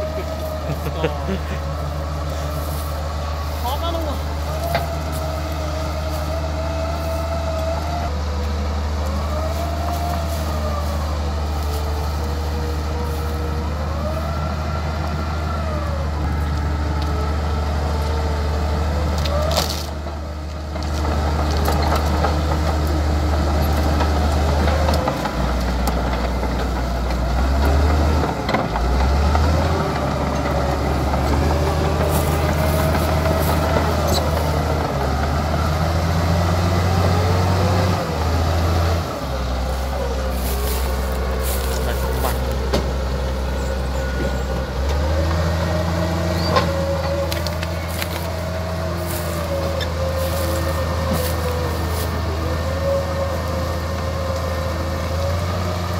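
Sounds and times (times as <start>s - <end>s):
rising and falling machine whine: 0.0s - 19.9s
bulldozer diesel engine droning: 0.0s - 55.9s.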